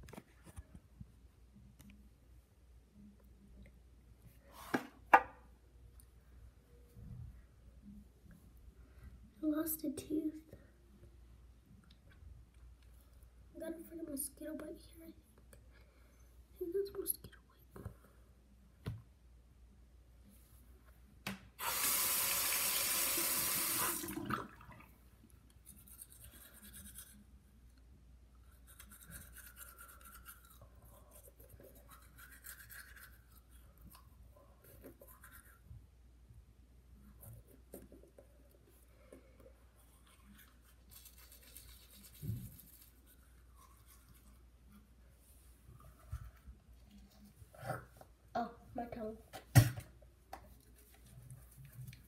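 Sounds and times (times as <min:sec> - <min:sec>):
tap water running: 0:21.6 - 0:24.8
toothbrush scrubbing teeth: 0:25.5 - 0:27.5, 0:28.4 - 0:34.1, 0:34.8 - 0:35.7, 0:39.7 - 0:44.9.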